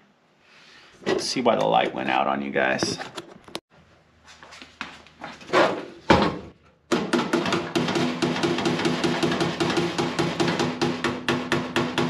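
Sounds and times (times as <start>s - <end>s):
hammer tapping sheet steel: 6.9s - 12.0s.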